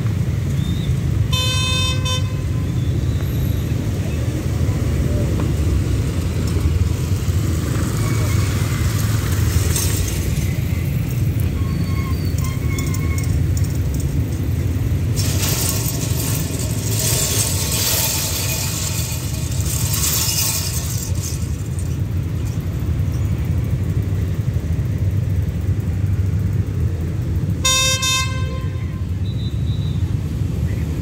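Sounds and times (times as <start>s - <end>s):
train horn: 1.3s - 2.6s, 27.6s - 29.1s.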